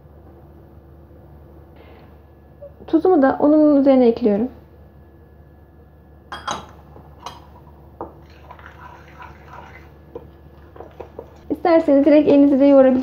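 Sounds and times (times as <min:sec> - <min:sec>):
spoon stirring and scraping batter: 0:08.2 - 0:12.1.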